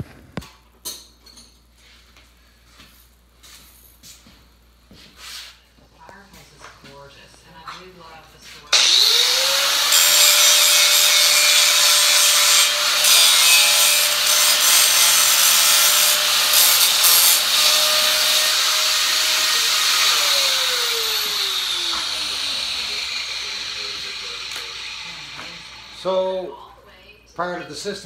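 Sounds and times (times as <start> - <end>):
grinder disc spinning down: 8.7 - 26.1
angle grinder grinding steel: 8.7 - 26.4.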